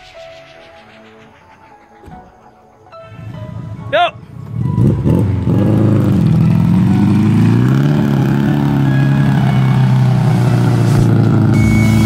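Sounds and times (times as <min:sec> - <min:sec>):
car engine pulling under load: 0:03.2 - 0:12.0.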